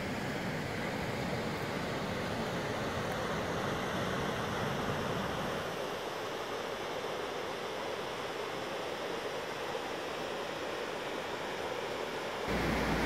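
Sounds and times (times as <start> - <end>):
rushing white water: 0.0 - 13.0.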